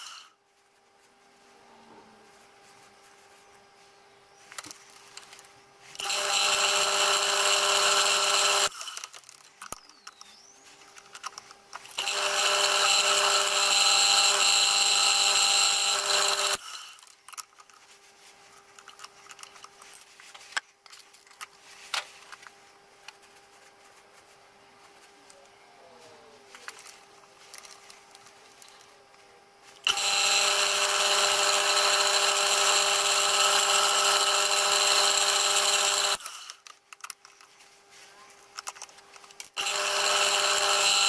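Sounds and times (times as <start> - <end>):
milling machine whine: 6.0 - 8.9, 11.9 - 16.8, 29.8 - 36.3, 39.6 - 41.0.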